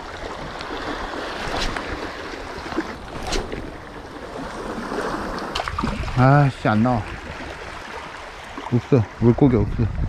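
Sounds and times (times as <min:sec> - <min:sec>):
small waves lapping on rocks: 0:00.0 - 0:09.4
wind rumble on microphone: 0:09.1 - 0:10.0.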